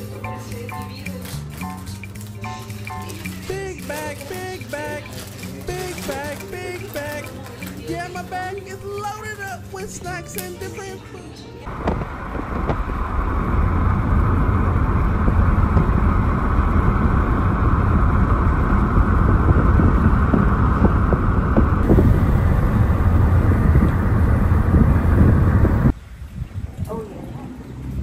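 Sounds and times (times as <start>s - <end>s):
car driving at speed: 11.7s - 25.9s.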